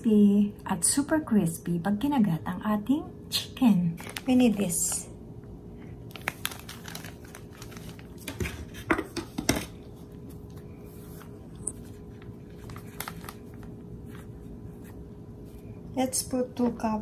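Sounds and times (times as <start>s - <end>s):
plastic bag crinkling: 4.0s - 5.0s, 6.0s - 8.9s, 10.0s - 14.5s.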